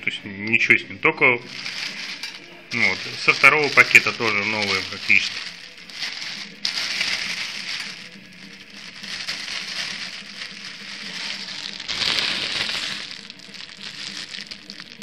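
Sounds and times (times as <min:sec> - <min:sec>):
plastic bags crinkling: 0:01.2 - 0:15.0.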